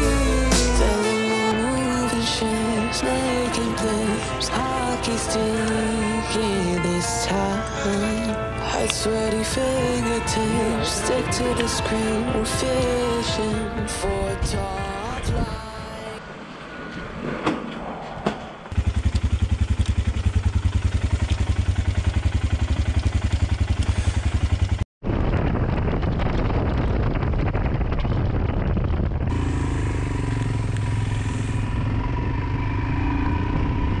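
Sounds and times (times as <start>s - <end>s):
wind and road noise: 1.7s - 34.0s
motorcycle engine idling: 18.7s - 24.8s, 29.3s - 34.0s
motorcycle engine at road speed: 18.7s - 34.0s.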